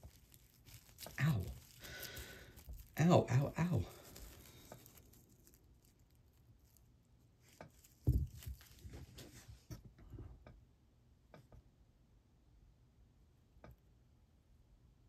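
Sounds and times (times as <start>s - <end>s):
jewelry boxes handling noises: 0.0s - 9.8s.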